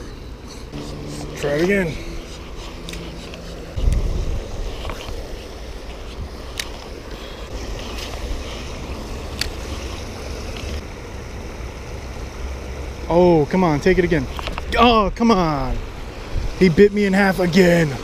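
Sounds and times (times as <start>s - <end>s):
wind rumbling on microphone: 2.1s - 10.8s, 14.6s - 16.8s.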